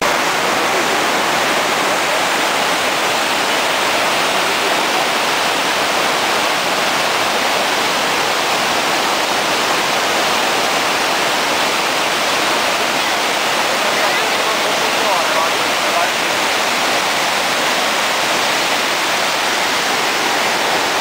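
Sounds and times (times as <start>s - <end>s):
waterfall and stream rushing: 0.0s - 21.0s.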